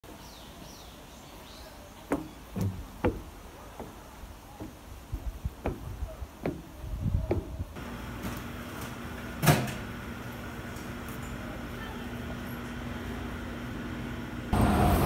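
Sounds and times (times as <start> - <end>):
footsteps on wooden steps: 2.0 - 7.8.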